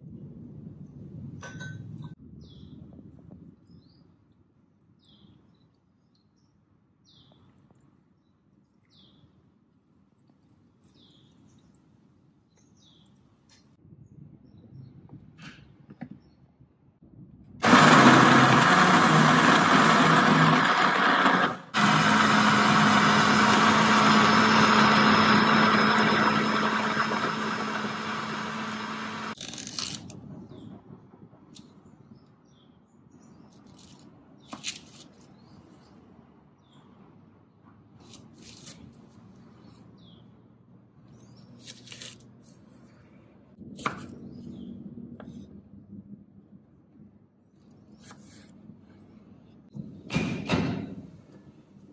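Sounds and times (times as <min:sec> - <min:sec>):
blender motor running: 0:17.6 - 0:29.4
knife cutting crunchy stalks: 0:29.4 - 0:30.1, 0:33.5 - 0:35.4, 0:38.0 - 0:39.0, 0:41.6 - 0:42.6.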